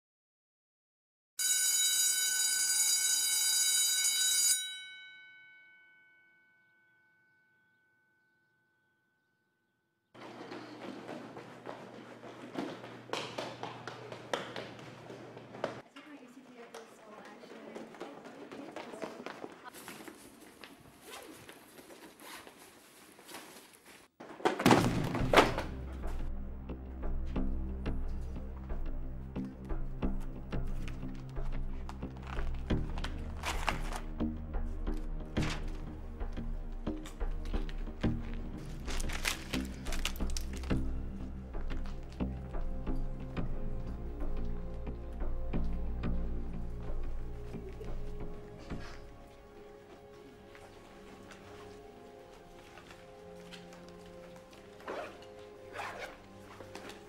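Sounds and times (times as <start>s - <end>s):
school bell ringing: 1.4s - 8.5s
footsteps pattering: 10.2s - 24.4s, 29.4s - 57.0s
faint hallway background noise: 10.2s - 24.6s, 43.8s - 57.0s
low music drone: 25.6s - 57.0s.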